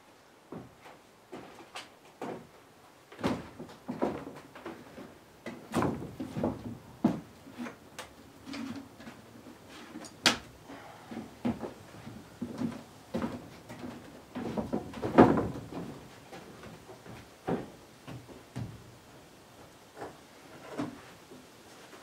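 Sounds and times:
footsteps on wooden planks: 0.5s - 10.0s, 11.0s - 22.0s
wooden window frames knocking: 14.4s - 16.0s.

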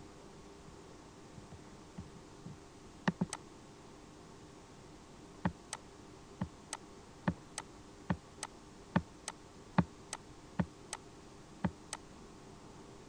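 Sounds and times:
faint steady hum: 0.0s - 13.0s
computer mouse clicking: 3.1s - 3.4s.

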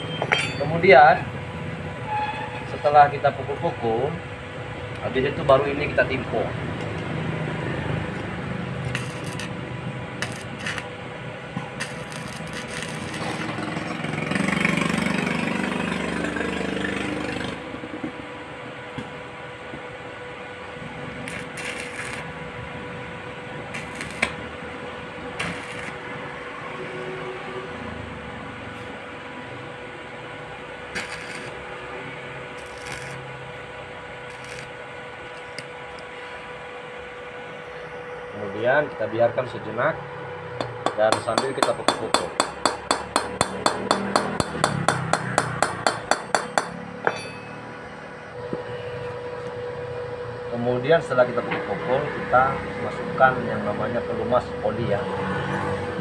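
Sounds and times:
welder hum: 4.9s - 18.1s, 20.7s - 27.4s, 30.0s - 38.8s, 40.5s - 51.0s
welding arc crackling hiss: 8.1s - 10.9s, 11.7s - 14.3s, 21.2s - 22.4s, 23.7s - 24.5s, 25.3s - 26.1s, 30.9s - 31.8s, 32.6s - 33.5s, 34.3s - 35.7s
sharp welding snap: 8.8s - 9.6s, 10.2s - 10.9s, 11.8s - 13.6s, 21.3s - 22.3s, 23.7s - 24.4s, 25.4s - 26.0s, 30.9s - 31.6s, 32.6s - 33.3s, 34.3s - 34.8s, 40.6s - 46.8s.

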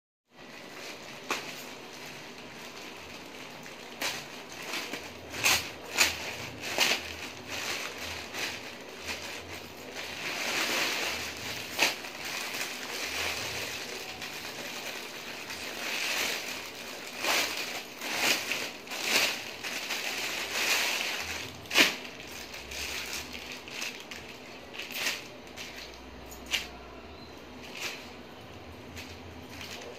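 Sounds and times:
plastic packaging crinkling: 0.3s - 29.9s.

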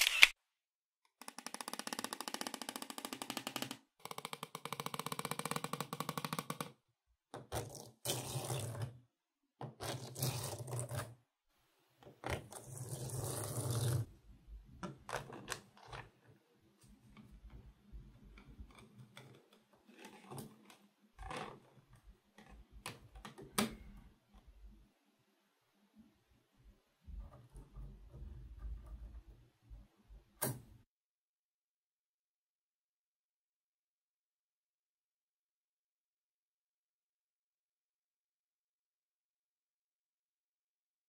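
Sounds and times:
card scraping magnetic balls: 0.0s - 0.4s.

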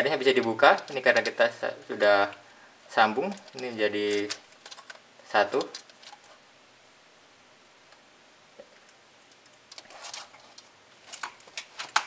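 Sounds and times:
hands handling plastic case: 0.2s - 2.2s, 3.2s - 6.4s, 9.3s - 12.0s.

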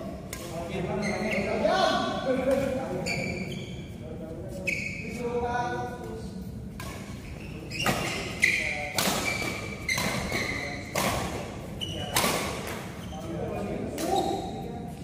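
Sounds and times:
voices: 0.1s - 15.0s
rackets hitting shuttlecock: 6.8s - 13.0s.

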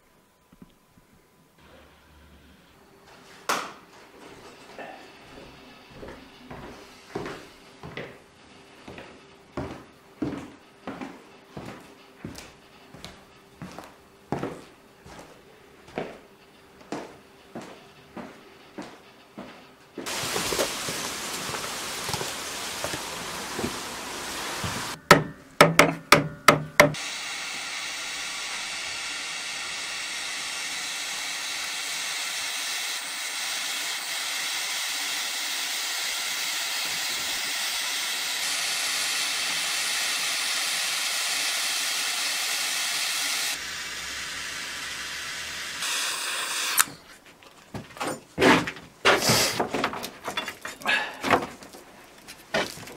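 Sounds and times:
gas torch hissing: 20.0s - 25.0s, 27.0s - 47.1s, 49.2s - 49.6s
knocks: 25.0s - 27.0s.

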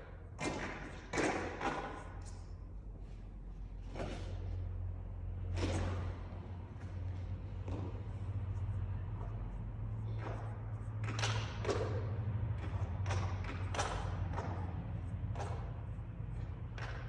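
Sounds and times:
echoing knocks and taps: 0.0s - 2.5s, 9.2s - 17.0s
low hum: 2.2s - 17.0s.

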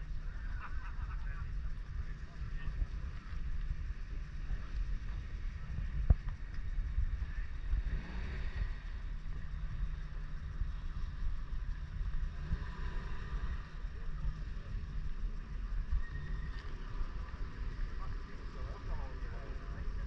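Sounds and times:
wind buffeting microphone: 0.0s - 12.8s
faint background murmur: 0.0s - 20.0s.

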